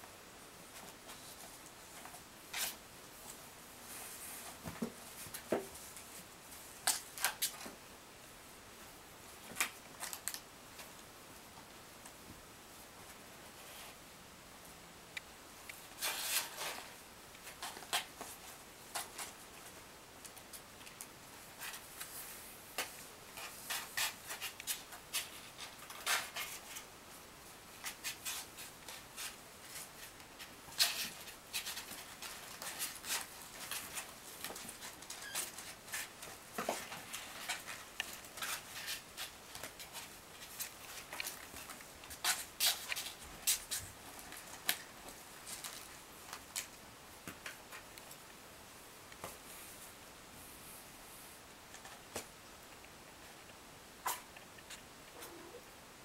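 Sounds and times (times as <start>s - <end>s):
kittens scratching cardboard box: 21.6s - 26.8s, 27.8s - 46.0s.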